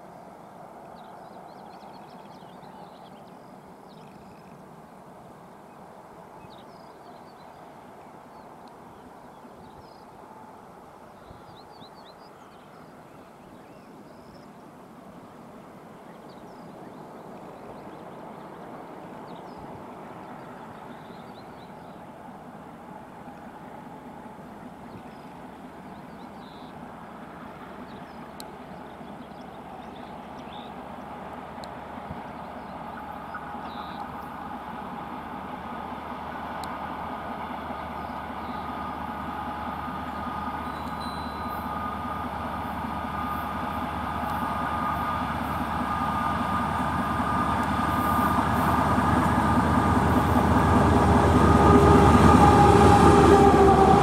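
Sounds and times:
diesel locomotive engine droning: 0.0 - 54.0
birds chirping: 37.4 - 52.4.

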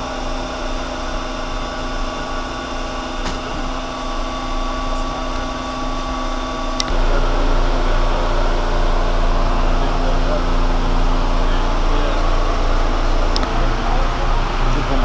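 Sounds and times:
deeper hum: 0.0 - 15.0
machinery humming: 0.0 - 15.0
clicks: 6.8 - 7.0.

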